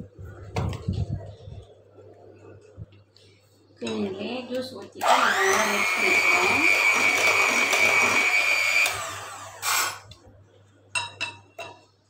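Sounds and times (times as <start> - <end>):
electric hand mixer whining: 5.0 - 10.0.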